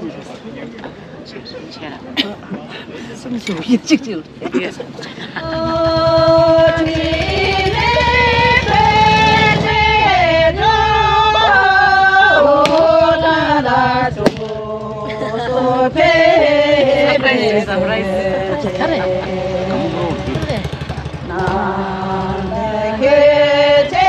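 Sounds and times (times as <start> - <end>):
person singing with accompaniment: 21.3 - 24.0.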